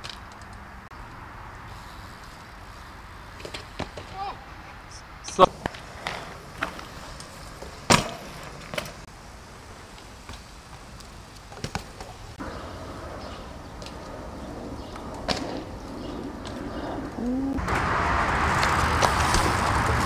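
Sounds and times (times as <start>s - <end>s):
steady background noise: 0.0s - 20.0s
skateboard landings knocking on concrete: 7.7s - 8.9s.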